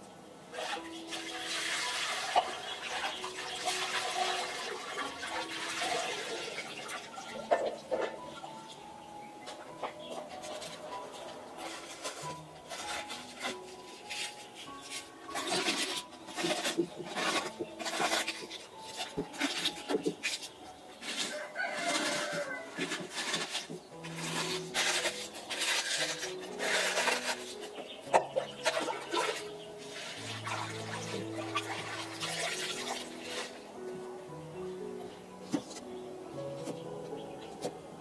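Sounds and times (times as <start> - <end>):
water splashing: 0.6 - 8.1, 11.8 - 33.6
cabbage leaves tearing: 10.4 - 33.6
chickens clucking: 26.6 - 29.8.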